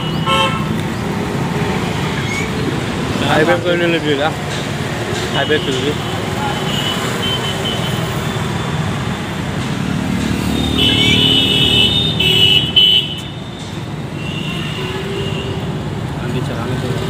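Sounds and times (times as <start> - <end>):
vehicle horn blasts: 0.0 - 0.7, 10.5 - 13.4
road traffic: 0.0 - 17.0.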